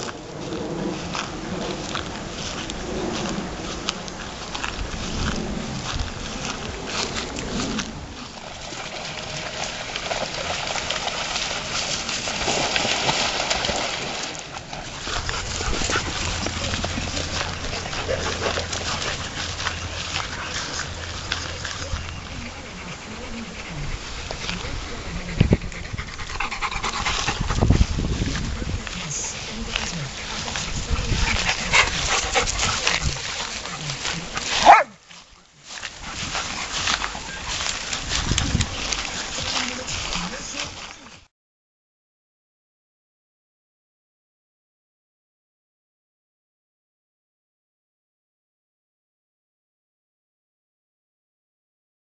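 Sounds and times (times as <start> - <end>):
dogs splashing in water: 0.0 - 41.1
loud dog bark: 34.6 - 35.0.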